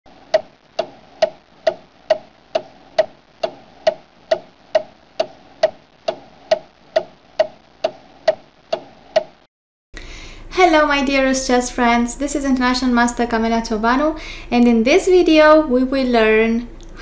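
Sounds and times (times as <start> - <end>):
clock ticking: 0.2 - 9.5.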